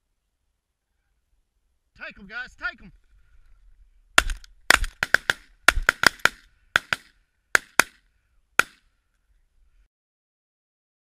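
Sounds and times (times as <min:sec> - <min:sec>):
shotgun shots: 0:04.2 - 0:08.0, 0:08.6 - 0:08.8.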